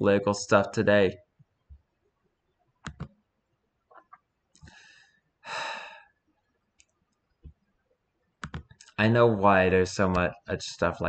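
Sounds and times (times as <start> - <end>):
person sighing: 4.7 - 6.1.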